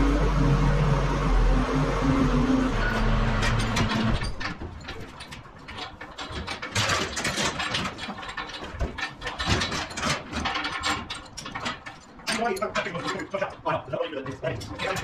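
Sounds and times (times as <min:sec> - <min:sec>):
low engine hum: 0:00.0 - 0:04.8.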